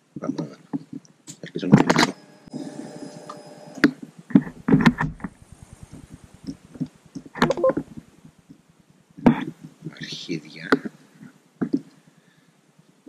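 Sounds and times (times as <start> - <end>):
electric starter cranking: 1.9 - 3.9.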